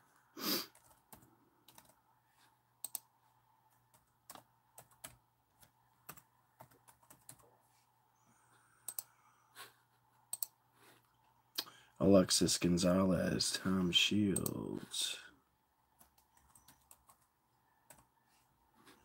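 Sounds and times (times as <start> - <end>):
faint low hum: 0.0 - 19.0
laptop keyboard keystrokes: 0.8 - 2.0, 3.9 - 7.4.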